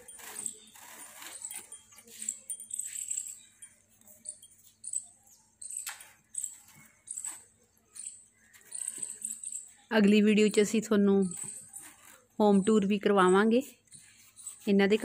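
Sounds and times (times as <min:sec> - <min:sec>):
cord scraping through woven bed: 0:00.0 - 0:02.4
small birds chirping: 0:00.0 - 0:15.0.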